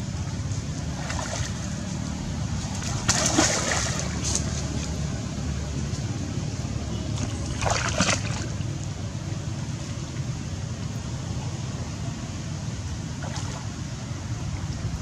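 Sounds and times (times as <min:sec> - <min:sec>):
steady low rumble: 0:00.0 - 0:15.0
water splash: 0:00.9 - 0:01.8, 0:02.6 - 0:04.9, 0:07.1 - 0:08.7, 0:13.1 - 0:13.8.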